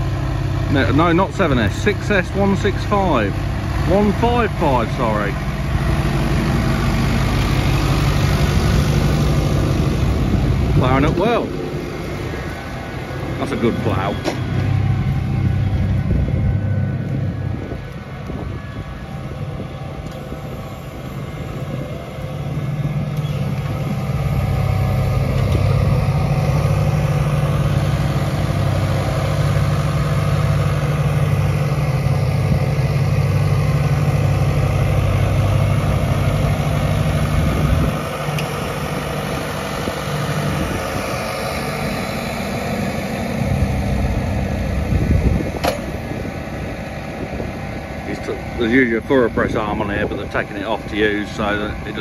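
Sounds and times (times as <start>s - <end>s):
tractor diesel engine: 0.0s - 52.0s.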